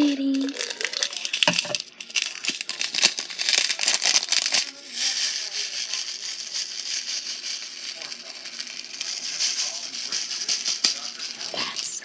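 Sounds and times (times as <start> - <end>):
plastic crinkling: 0.0 - 12.0
sprinkles rattling in plastic container: 0.0 - 12.0
sprinkles pouring hiss: 3.5 - 12.0.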